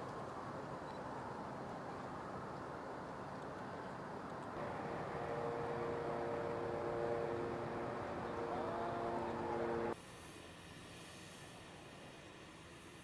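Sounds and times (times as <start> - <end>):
distant ships rumbling: 4.6 - 10.0
steady held tones: 4.6 - 10.0.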